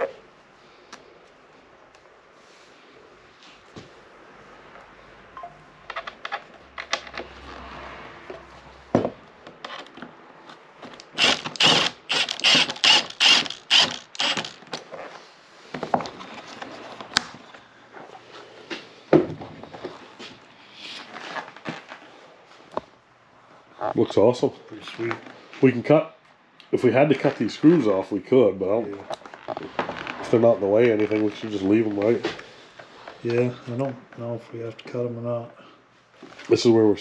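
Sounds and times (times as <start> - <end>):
knocks and handling sounds: 5.8 - 11.2, 14.2 - 23.0
impact driver hammering: 11.1 - 14.6.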